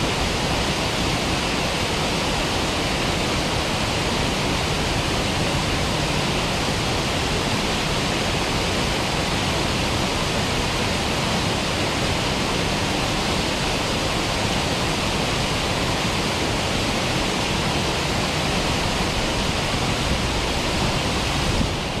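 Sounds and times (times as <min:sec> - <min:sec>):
waterfalls pouring into pool: 0:00.0 - 0:22.0.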